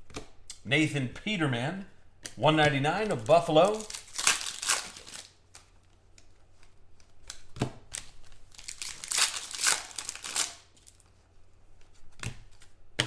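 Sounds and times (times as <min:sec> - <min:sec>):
foil wrapper crinkling and tearing: 0:03.0 - 0:06.2, 0:07.2 - 0:11.2.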